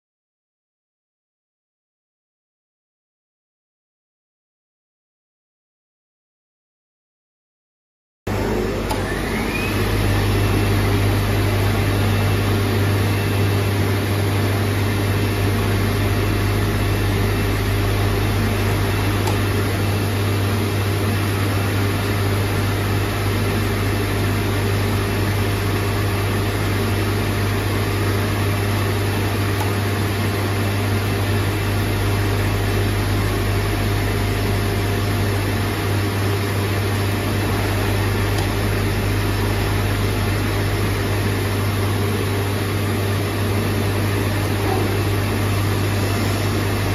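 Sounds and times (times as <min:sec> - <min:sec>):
short rising whine: 0:08.3 - 0:23.0, 0:37.2 - 0:46.9
cutting machine hum and whir: 0:08.3 - 0:46.9.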